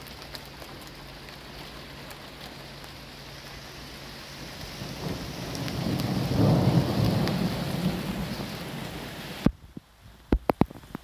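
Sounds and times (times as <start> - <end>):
rain hiss: 0.0 - 11.0
rolling thunder: 4.4 - 9.5.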